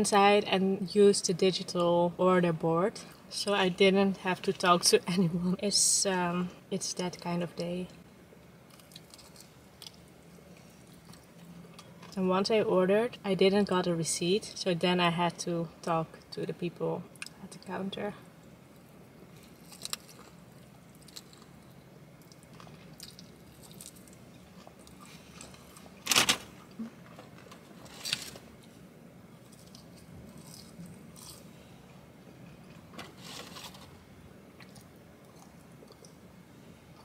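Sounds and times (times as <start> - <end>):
person chewing crunchy food: 8.7 - 12.2, 19.3 - 26.0, 29.4 - 31.6, 34.6 - 36.2.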